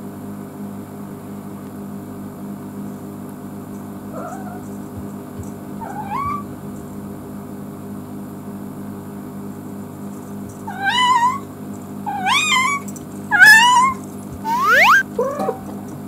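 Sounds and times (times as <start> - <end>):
cat meowing: 4.1 - 4.7, 5.8 - 6.5, 10.6 - 15.7.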